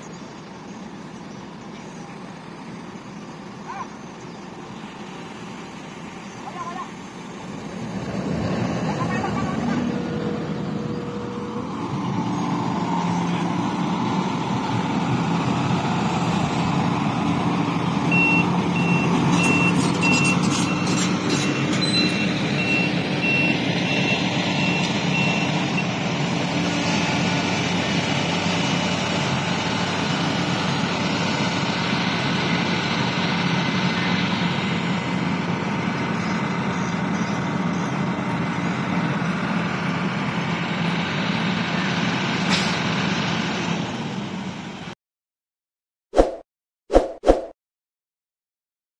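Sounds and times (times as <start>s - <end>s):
diesel trucks running: 0.0s - 45.0s
reversing alarm beeping: 18.1s - 26.0s.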